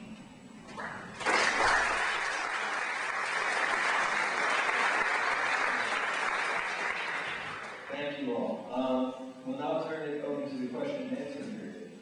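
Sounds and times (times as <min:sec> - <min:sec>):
audience applauding: 0:00.8 - 0:07.9.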